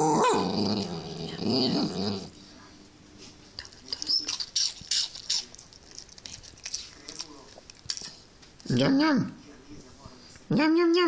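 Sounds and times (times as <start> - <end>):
dog growly vocalisation: 0.0 - 2.4
dog licking and smacking lips: 3.6 - 8.7.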